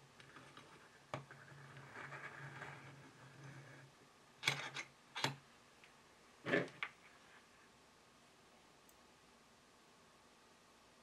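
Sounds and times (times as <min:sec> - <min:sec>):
soft scraping: 0:00.2 - 0:04.0.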